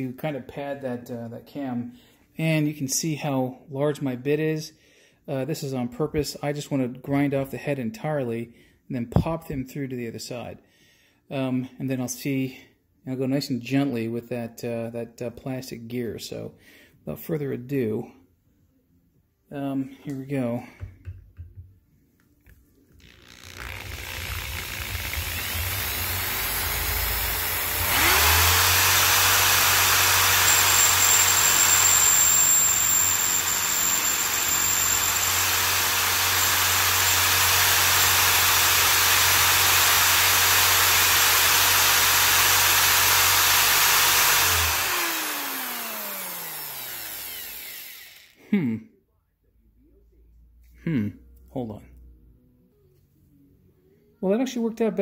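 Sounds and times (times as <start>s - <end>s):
electric drill grinding metal: 23.0s - 48.5s.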